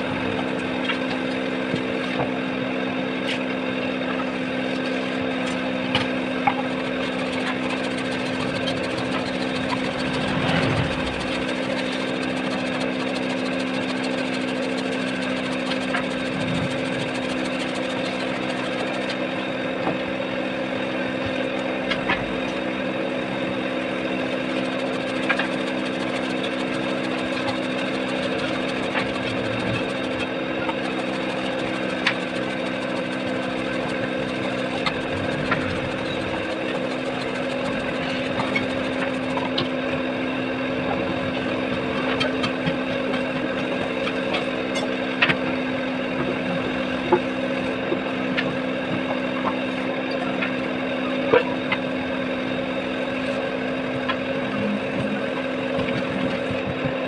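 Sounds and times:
electric carving tool motor hum: 5.4 - 42.5.

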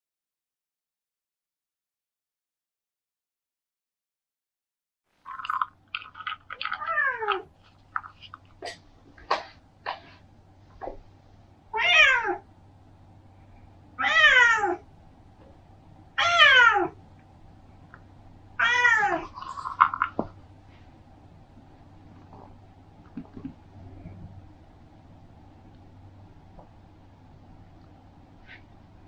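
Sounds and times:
cat meowing: 11.8 - 12.4, 14.0 - 14.8, 16.2 - 17.0, 18.6 - 19.4.

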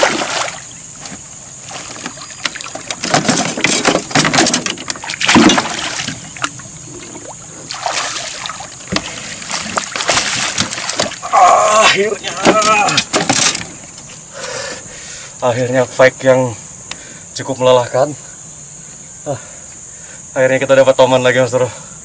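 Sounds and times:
fish thrashing and splashing: 0.0 - 0.7, 1.6 - 11.4.

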